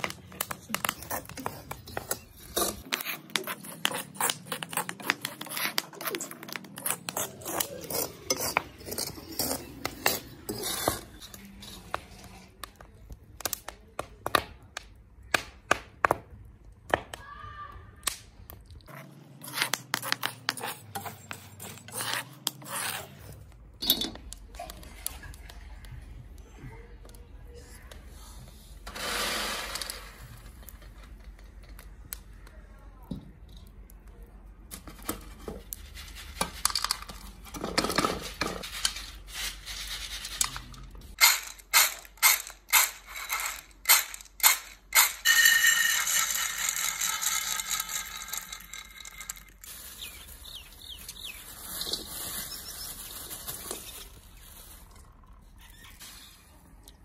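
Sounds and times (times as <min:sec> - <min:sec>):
corn kernels rattling in pans: 0:28.9 - 0:31.7, 0:34.7 - 0:54.9.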